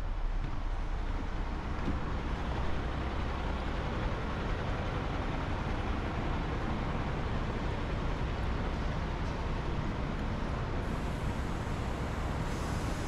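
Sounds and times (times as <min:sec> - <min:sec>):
urban traffic rumble: 0:00.0 - 0:13.0.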